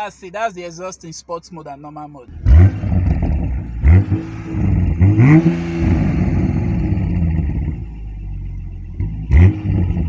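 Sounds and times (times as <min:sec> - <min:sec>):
car engine revving and idling: 0:02.3 - 0:10.0.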